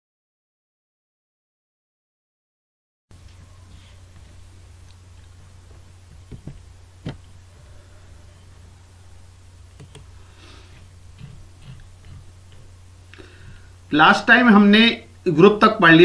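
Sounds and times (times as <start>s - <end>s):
low hum: 3.1s - 15.4s
computer mouse clicks: 9.7s - 10.1s.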